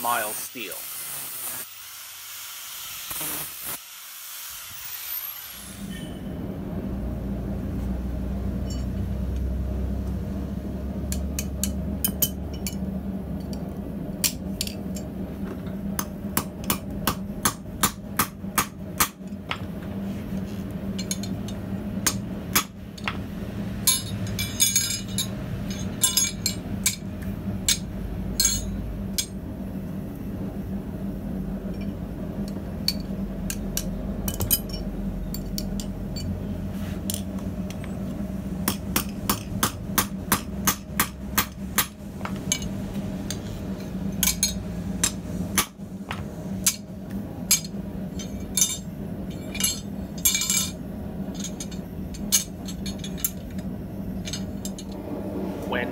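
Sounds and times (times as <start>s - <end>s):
steady low hum: 5.5s - 55.9s
hammer striking on anvil: 16.0s - 19.2s, 38.6s - 42.7s.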